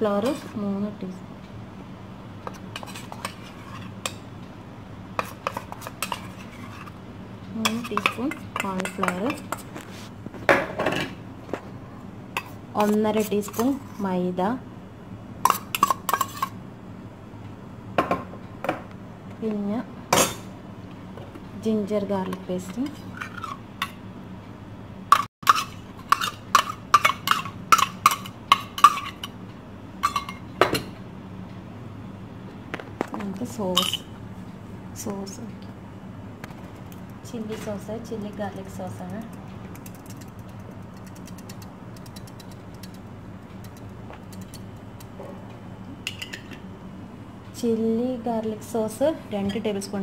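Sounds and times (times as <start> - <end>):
steady low hum: 0.0 - 50.0
metal spoon scraping steel bowl: 5.2 - 7.0, 7.7 - 9.7, 12.4 - 14.1, 15.5 - 16.5
rapid irregular clicking: 38.2 - 45.2.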